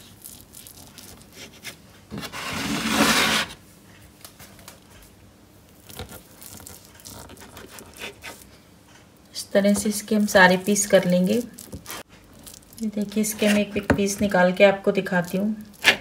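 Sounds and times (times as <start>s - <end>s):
knife scraping chopping board: 1.4s - 3.6s, 7.1s - 8.4s.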